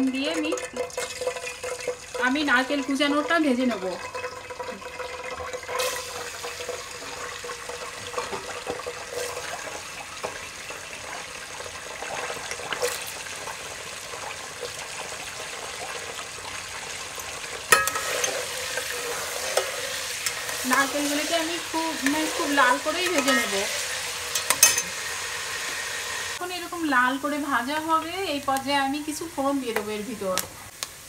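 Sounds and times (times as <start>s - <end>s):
coconut frying in hot oil: 0.0s - 31.0s
spatula clanking on pot: 17.2s - 21.1s, 22.0s - 23.6s, 24.3s - 25.0s.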